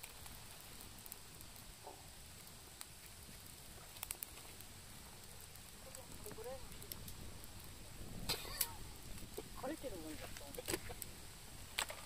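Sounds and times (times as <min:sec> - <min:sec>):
outdoor background hiss: 0:00.0 - 0:12.0
faint sharp clicks: 0:03.9 - 0:04.4.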